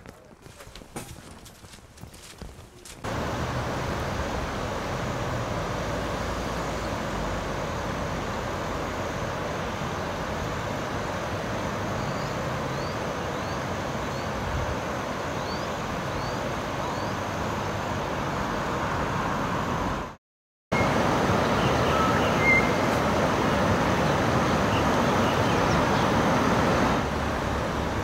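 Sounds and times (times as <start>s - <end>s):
flooded river rushing: 3.0s - 20.2s, 20.8s - 28.0s.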